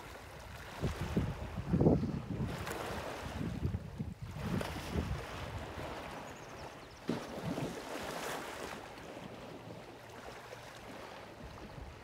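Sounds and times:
wind on microphone: 0.0 - 7.8
water splashing and sloshing: 0.0 - 12.0.

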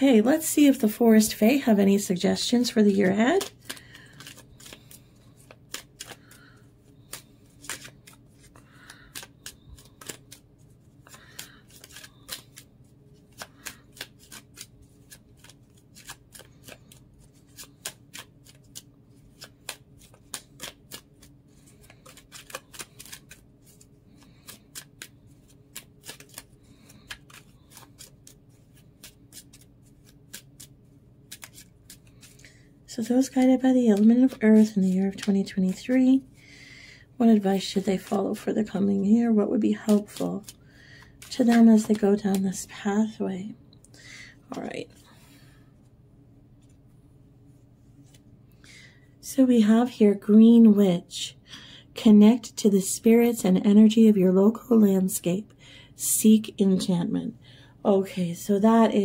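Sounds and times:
cards being shuffled: 1.4 - 36.2, 39.7 - 42.7.

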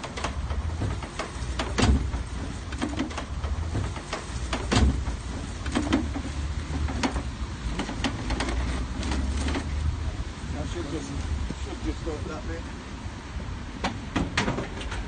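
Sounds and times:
shopping trolley rattling and clanking: 0.0 - 9.8.

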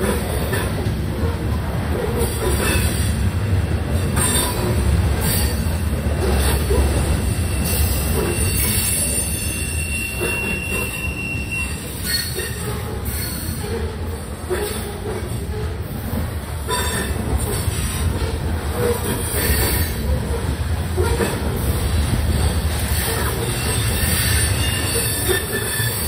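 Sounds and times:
train wheels rumbling on rail: 0.0 - 26.0
high-pitched wheel squeal: 7.4 - 13.5, 23.0 - 26.0.

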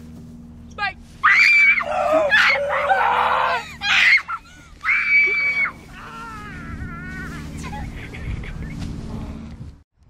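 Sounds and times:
person screaming: 1.2 - 7.3.

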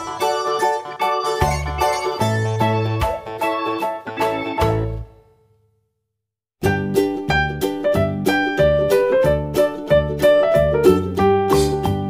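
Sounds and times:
background music with steady beat: 0.0 - 5.2, 10.7 - 12.0.

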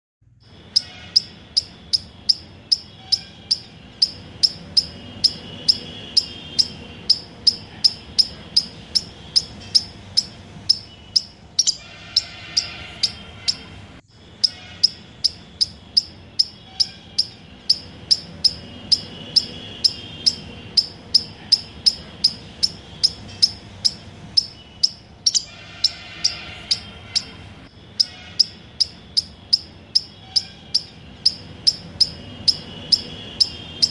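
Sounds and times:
faint chirps and calls: 0.4 - 33.9
insect chirping rhythmically: 0.4 - 33.9.

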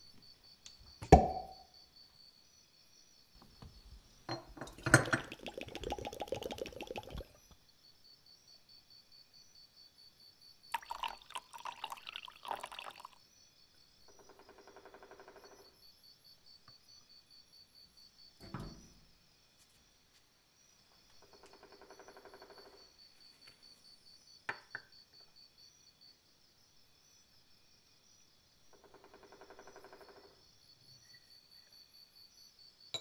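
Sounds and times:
cork popping from bottle: 1.0 - 1.6, 4.4 - 7.4, 10.7 - 13.1
liquid pouring into glass jar: 4.3 - 7.4, 10.7 - 13.2.

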